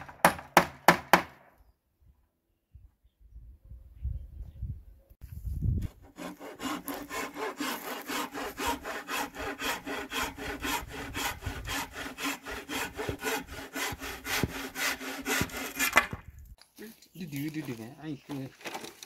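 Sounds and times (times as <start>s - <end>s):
handsaw cutting wood: 5.8s - 16.2s.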